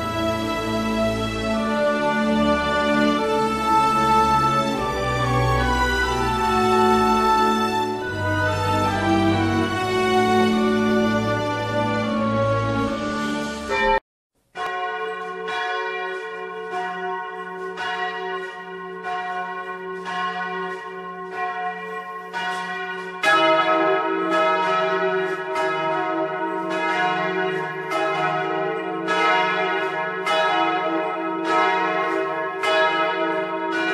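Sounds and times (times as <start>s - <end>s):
church bells ringing: 0.0s - 14.0s, 14.6s - 33.9s.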